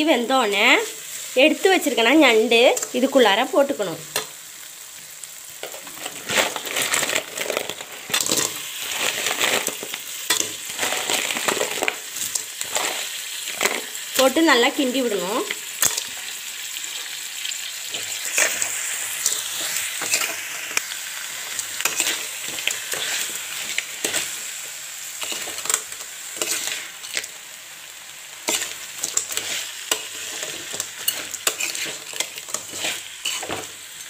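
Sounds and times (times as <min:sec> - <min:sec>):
food sizzling in a pan: 0:00.0 - 0:34.0
spoon scraping and clicking on pan: 0:09.6 - 0:13.9, 0:15.8 - 0:16.2, 0:21.8 - 0:24.4, 0:25.2 - 0:27.3, 0:28.4 - 0:33.7.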